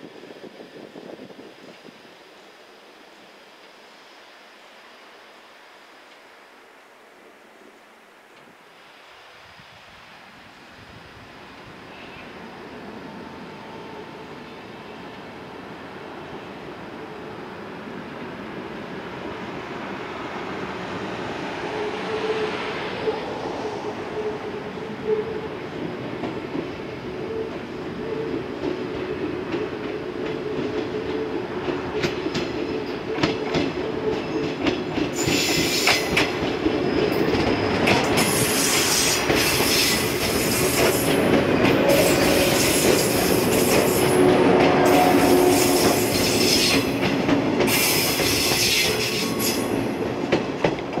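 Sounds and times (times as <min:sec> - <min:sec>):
train wheels clicking over rail joints: 0:28.3 - 0:51.0.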